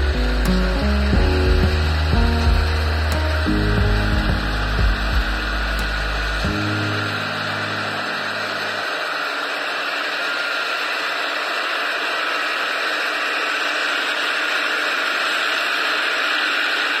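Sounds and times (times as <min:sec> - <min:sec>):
combine harvester running: 0:00.0 - 0:17.0.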